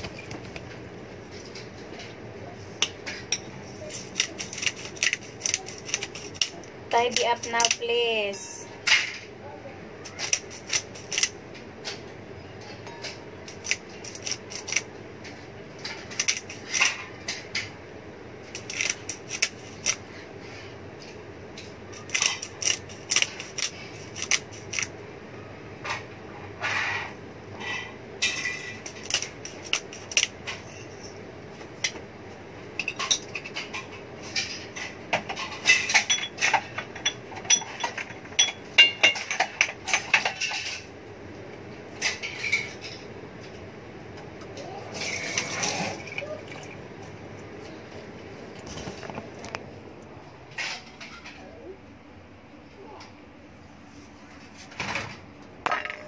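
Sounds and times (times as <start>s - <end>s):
spice grinder rattling: 3.9s - 6.6s
utensils clinking on ceramic bowl: 32.8s - 40.9s.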